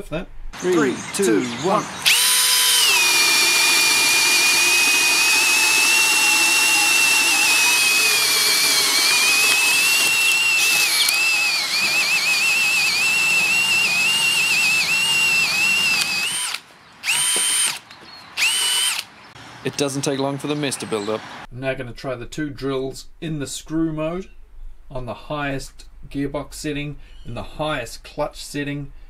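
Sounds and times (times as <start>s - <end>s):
cordless drill boring into wood: 2.0s - 17.8s, 18.4s - 19.1s.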